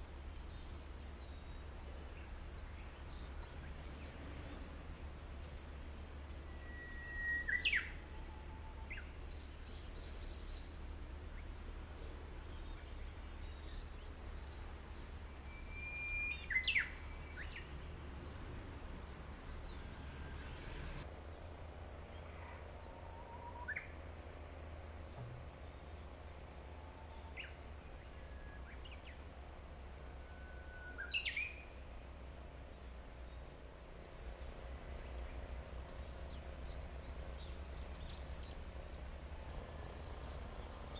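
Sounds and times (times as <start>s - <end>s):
steady background hiss: 0.0s - 40.9s
faint high steady tone: 13.4s - 17.7s.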